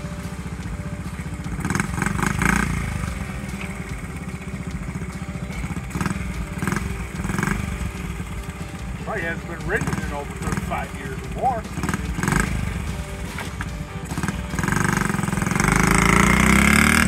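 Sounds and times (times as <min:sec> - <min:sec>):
minibike engine puttering: 0:00.0 - 0:17.0.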